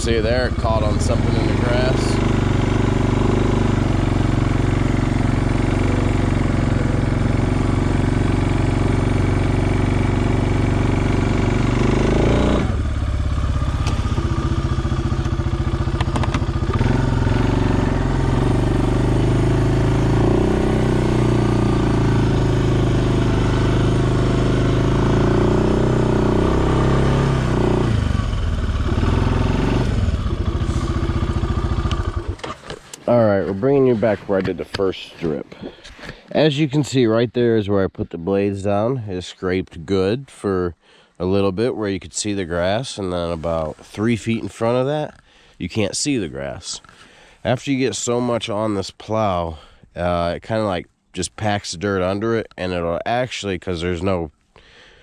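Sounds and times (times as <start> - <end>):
atv engine running under load: 0.0 - 34.4
plow blade pushing snow: 0.0 - 36.2.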